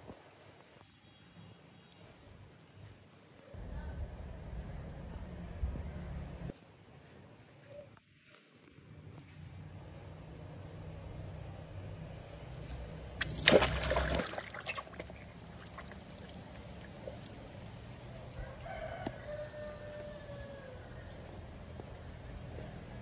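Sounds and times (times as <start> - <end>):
rooster crowing: 18.4 - 21.1.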